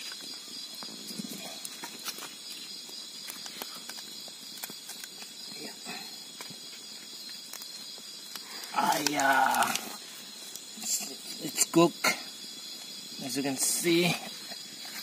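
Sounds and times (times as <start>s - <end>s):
insect chorus: 0.0s - 15.0s
bamboo cracking as it splits: 1.5s - 10.7s.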